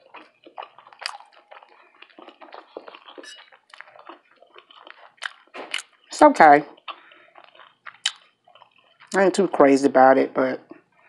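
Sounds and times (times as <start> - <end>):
wet mouth clicks and smacks: 0.0 - 6.1, 6.8 - 9.2
chewing sandwich: 0.0 - 9.5.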